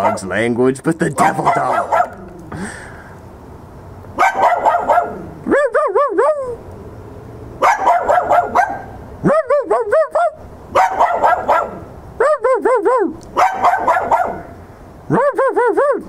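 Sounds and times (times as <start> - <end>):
dog barking: 0.0 - 0.3, 1.2 - 2.2, 4.2 - 5.3, 7.6 - 9.0, 9.6 - 11.9, 13.4 - 14.6
man imitating barks: 0.0 - 2.5, 4.2 - 6.6, 8.4 - 14.5, 15.1 - 16.0.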